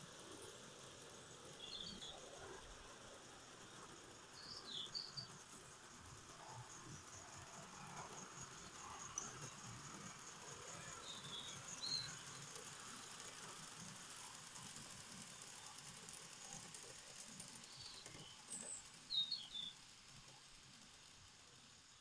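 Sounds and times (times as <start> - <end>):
model train clatter on track: 0.0 - 22.0
small birds chirping: 0.8 - 2.6, 3.6 - 5.8, 8.6 - 13.4, 17.5 - 19.9.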